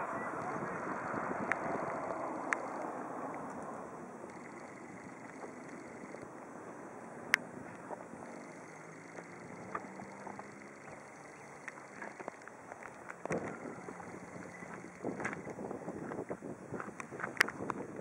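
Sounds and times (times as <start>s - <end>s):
wind on microphone: 0.0s - 6.2s, 13.2s - 18.0s
faint low hum: 0.0s - 16.3s
clicks: 1.4s - 6.3s.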